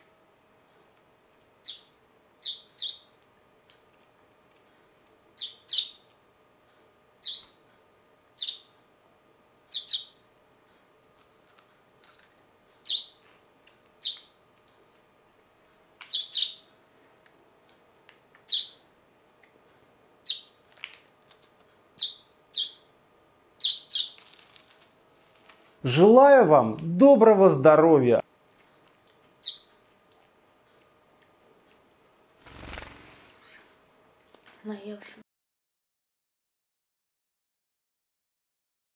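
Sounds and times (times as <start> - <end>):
sparrow chirping: 1.6 - 3.2, 5.4 - 6.1, 7.2 - 7.6, 8.4 - 8.7, 9.7 - 10.2, 12.8 - 13.2, 14.0 - 14.4, 16.1 - 16.7, 18.4 - 18.9, 20.2 - 20.6, 22.0 - 22.9, 23.6 - 24.2, 29.4 - 29.7, 32.5 - 32.8.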